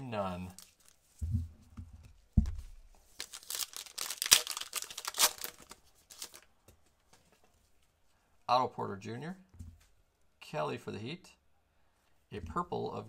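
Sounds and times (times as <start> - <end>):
wrapper crinkling and tearing: 0.4 - 1.0, 3.1 - 6.4
dull thumps: 1.2 - 2.8.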